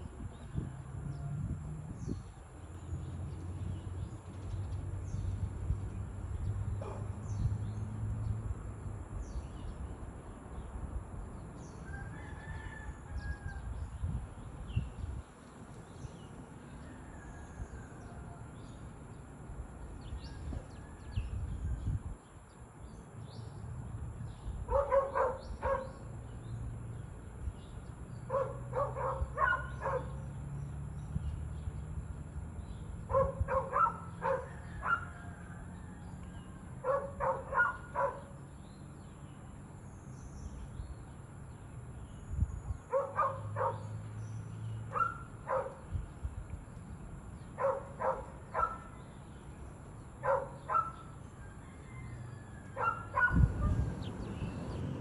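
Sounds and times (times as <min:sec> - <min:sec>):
dog barking: 0:06.8 - 0:07.1, 0:24.7 - 0:26.0, 0:28.3 - 0:30.2, 0:33.1 - 0:35.2, 0:36.8 - 0:38.3, 0:42.9 - 0:43.9, 0:44.9 - 0:45.8, 0:47.6 - 0:48.9, 0:50.2 - 0:51.0, 0:52.8 - 0:53.8.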